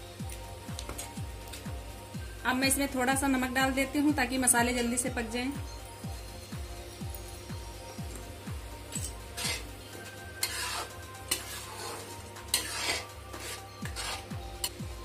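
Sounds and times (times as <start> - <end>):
sauce sizzling softly: 7.6 - 15.0
metal ladle scraping metal pan: 8.9 - 9.8, 10.4 - 14.8.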